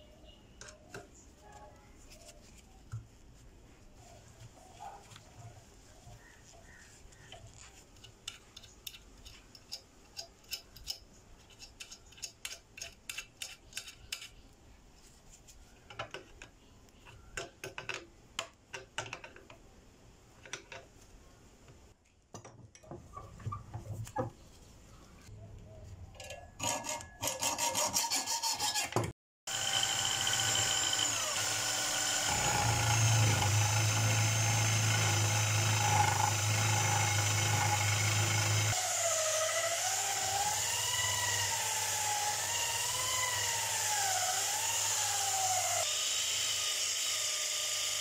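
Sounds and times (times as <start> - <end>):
pliers clicking on nut: 8.0 - 14.4.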